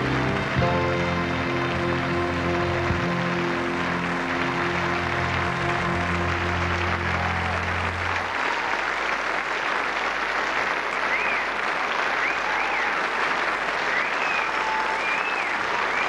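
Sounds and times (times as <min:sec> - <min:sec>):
band holding low notes: 0:00.0 - 0:08.4
large audience applauding: 0:00.0 - 0:16.0.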